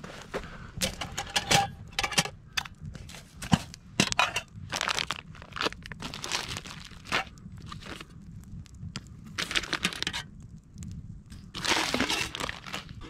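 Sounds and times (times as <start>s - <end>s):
plastic packets crinkling: 4.6s - 8.2s, 11.5s - 13.0s.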